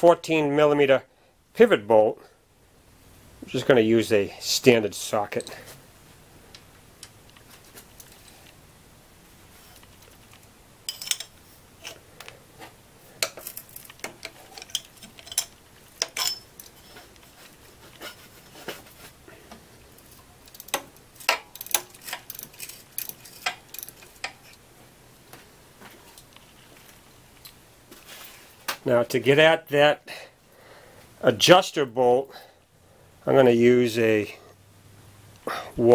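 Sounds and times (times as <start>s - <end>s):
wrench and socket clicking: 20.5s - 24.1s.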